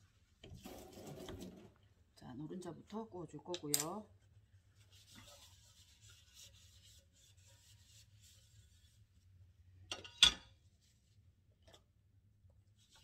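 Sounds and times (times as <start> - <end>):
paper towel scrubbing pan: 4.6 - 9.2.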